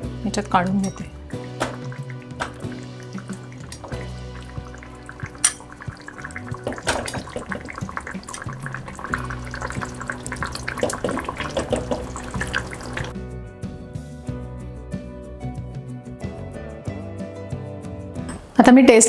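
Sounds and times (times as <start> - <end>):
soft background music: 0.0 - 19.0
liquid splashing and dribbling: 1.0 - 13.2.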